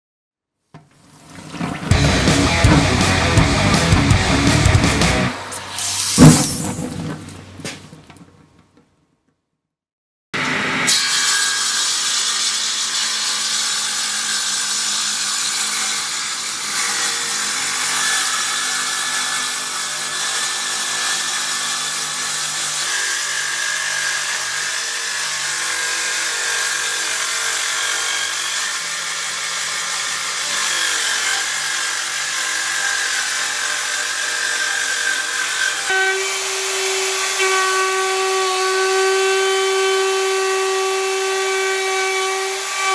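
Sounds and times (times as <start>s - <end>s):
table saw whine: 10.4s - 42.9s.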